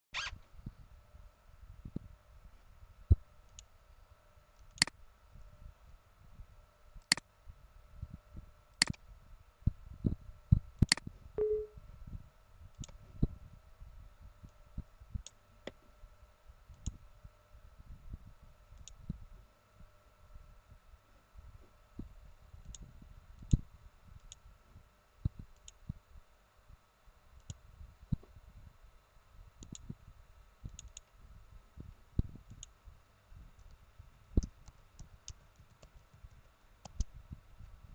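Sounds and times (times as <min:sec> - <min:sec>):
faint electrical hum: 0:00.1 - 0:37.9
brief low tone: 0:11.4 - 0:11.8
computer mouse clicking: 0:29.6 - 0:29.8, 0:30.7 - 0:31.1, 0:34.4 - 0:37.1.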